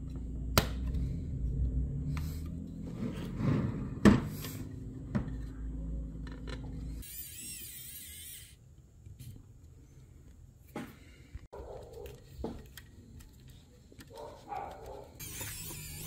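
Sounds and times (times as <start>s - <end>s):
electric screwdriver whining: 15.2s - 16.0s.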